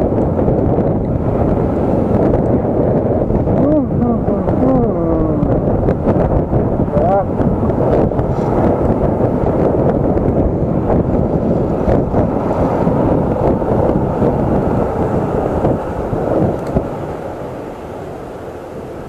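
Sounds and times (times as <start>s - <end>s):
road rumble: 0.0s - 19.0s
wind buffeting microphone: 0.0s - 19.0s.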